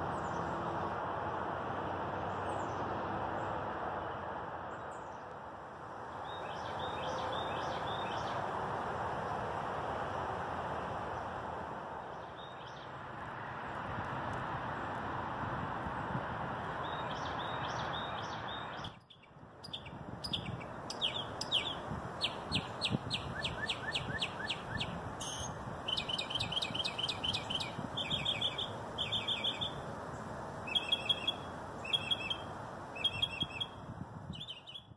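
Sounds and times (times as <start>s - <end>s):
songbirds chirping: 0.0s - 13.9s, 16.0s - 34.9s.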